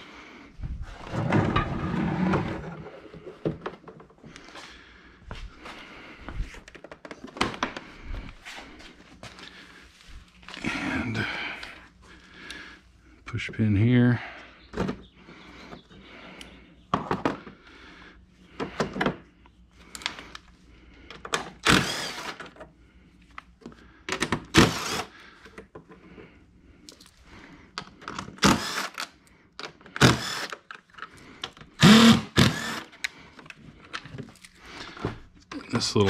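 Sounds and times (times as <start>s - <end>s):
cordless drill running: 21.6s - 22.4s, 24.5s - 25.1s, 28.4s - 29.1s, 30.0s - 30.6s, 31.8s - 33.0s.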